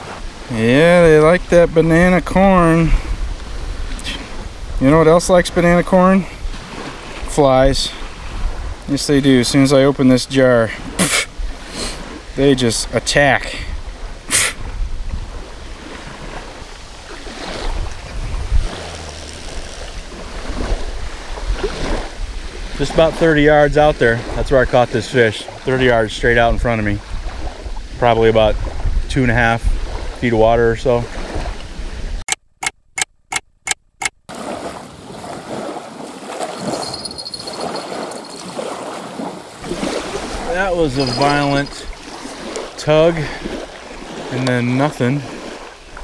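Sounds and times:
small waves lapping on shore: 0.0 - 32.2, 34.0 - 46.0
wind buffeting microphone: 0.0 - 32.2, 34.4 - 44.5
sharp clicks: 32.3 - 34.2.

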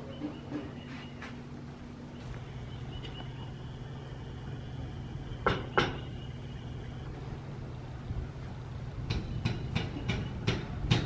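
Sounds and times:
steady low hum: 0.0 - 11.0
sharp knocks: 9.1 - 11.0.

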